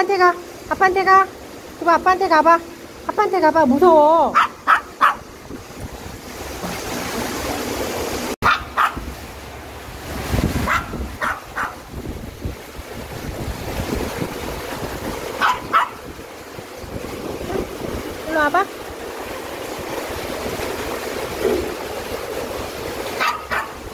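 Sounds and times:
stream rushing: 0.0s - 23.9s
dog barking: 4.3s - 5.3s, 8.4s - 9.1s, 10.6s - 11.8s, 15.4s - 16.0s, 23.2s - 23.8s.

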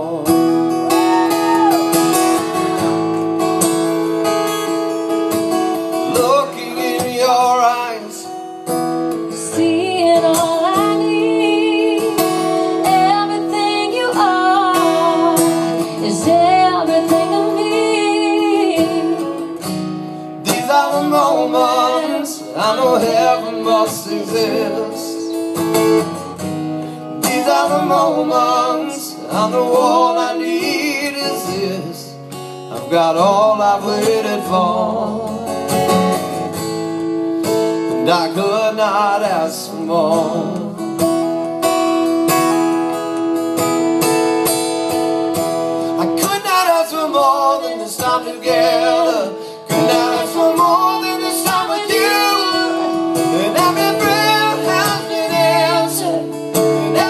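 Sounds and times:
acoustic guitars strummed: 0.0s - 57.0s
woman singing with vibrato: 1.0s - 2.2s, 9.4s - 19.6s, 53.4s - 57.0s.

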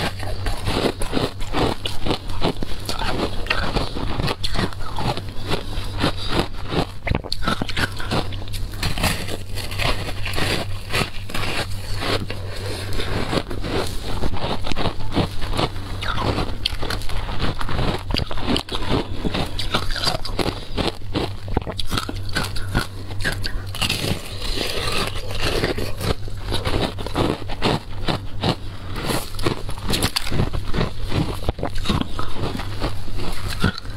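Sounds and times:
ice crunching while chewed: 0.0s - 33.9s
low hum: 0.0s - 33.9s.

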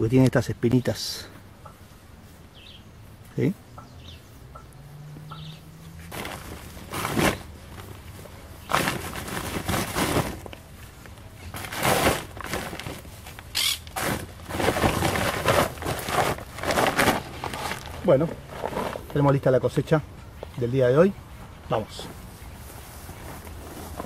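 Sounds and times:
plastic sack rustling: 6.0s - 19.5s, 22.0s - 24.0s.

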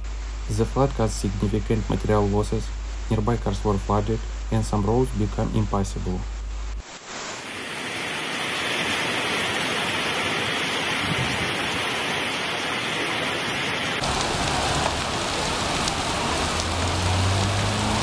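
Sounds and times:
heavy rain: 0.0s - 18.0s
floodwater rushing on street: 7.4s - 18.0s
cars driving through water: 8.8s - 18.0s.

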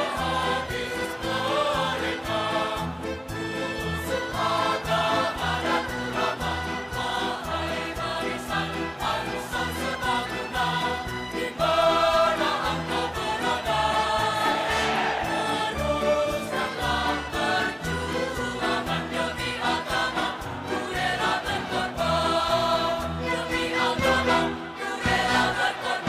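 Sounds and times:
choir singing over a beat: 0.0s - 26.0s.

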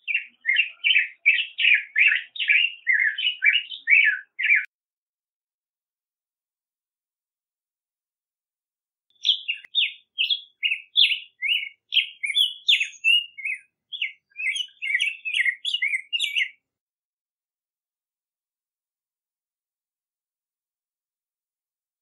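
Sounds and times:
bird singing warbled song: 0.0s - 4.7s, 9.1s - 16.7s.

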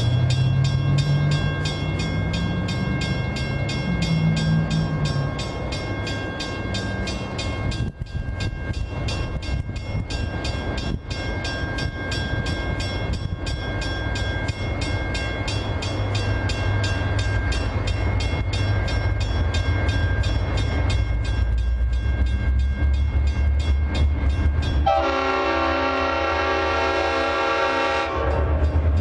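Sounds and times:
diesel locomotive engine rumble: 0.0s - 29.0s
multi-note air horn: 24.9s - 28.4s.

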